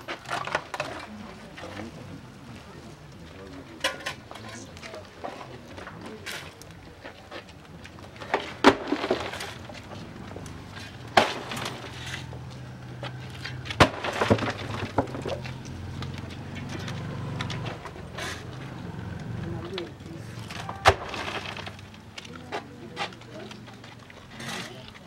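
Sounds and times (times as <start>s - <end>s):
soil scattering: 7.5s - 25.0s
shovel scraping earth: 20.3s - 21.9s, 24.3s - 24.8s.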